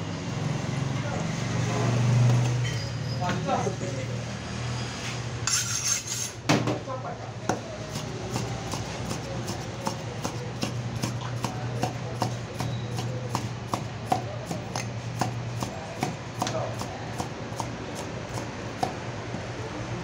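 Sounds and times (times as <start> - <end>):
knife chopping on wooden block: 7.5 - 19.0.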